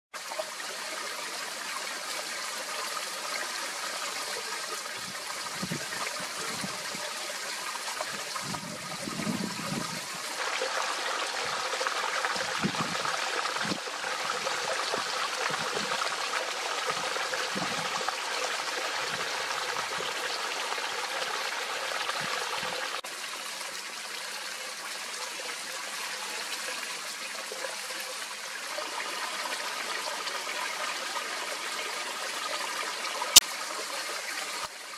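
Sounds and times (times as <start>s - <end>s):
stream trickling over rocks: 0.2s - 34.9s.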